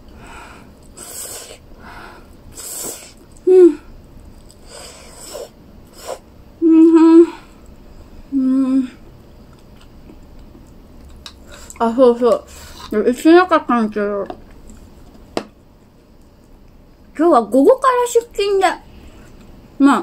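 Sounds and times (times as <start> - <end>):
woman breathing with hissing: 0.1 - 3.8, 4.6 - 6.3
woman humming closed-mouth: 6.6 - 7.4.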